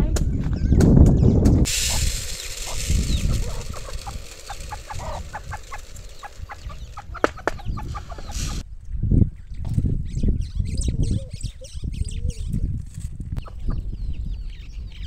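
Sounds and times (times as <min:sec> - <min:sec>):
chickens clucking: 0:01.7 - 0:08.6.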